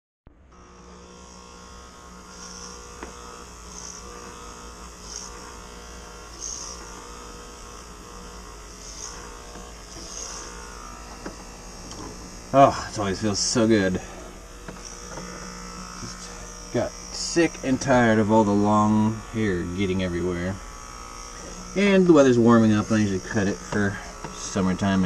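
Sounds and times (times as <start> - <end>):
electric hair clippers buzzing: 0.3 - 25.0
clippers swishing through hair: 2.3 - 17.7, 20.6 - 24.6.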